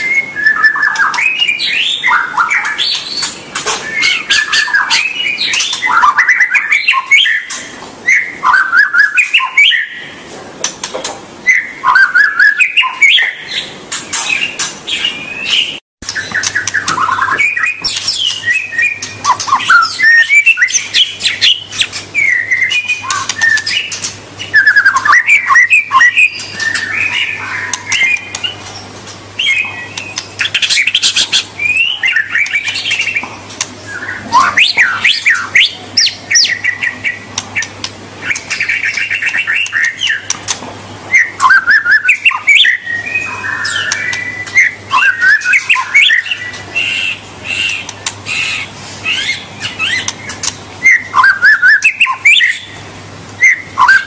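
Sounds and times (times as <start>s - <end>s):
bird singing whistles and trills: 0.0s - 10.2s, 11.4s - 40.4s, 41.1s - 52.8s, 53.4s - 54.0s.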